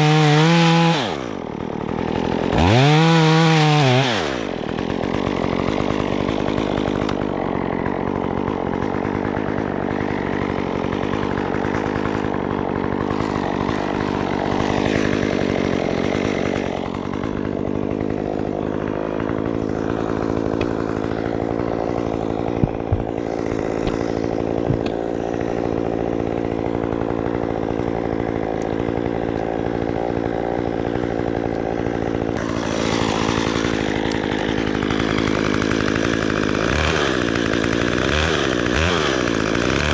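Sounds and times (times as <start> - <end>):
chainsaw idling: 0.0 - 39.9
sharp knocks: 22.5 - 23.1, 24.6 - 25.0.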